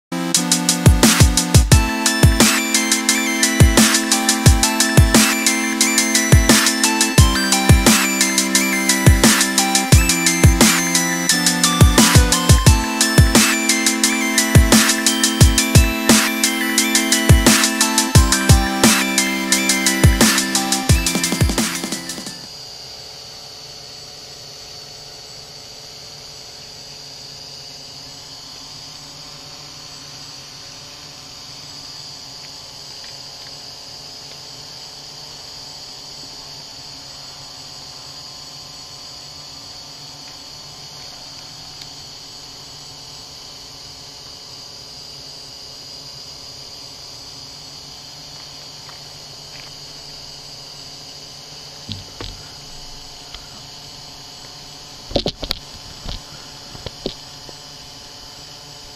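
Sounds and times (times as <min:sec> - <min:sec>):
insect chorus: 0:00.2 - 0:58.9
sharp knocks: 0:51.9 - 0:52.5.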